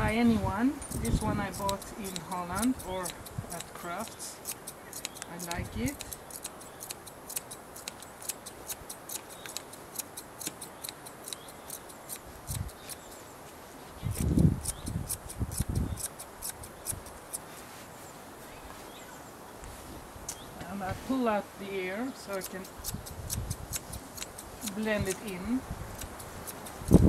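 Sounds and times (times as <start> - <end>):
scissors snipping hair: 0.8 - 13.2, 14.1 - 17.4, 22.2 - 27.0.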